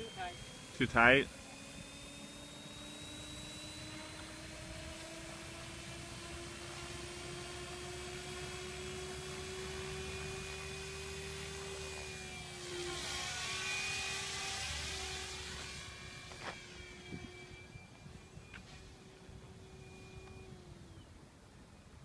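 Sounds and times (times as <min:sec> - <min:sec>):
model helicopter rotor whine: 0:00.0 - 0:22.0.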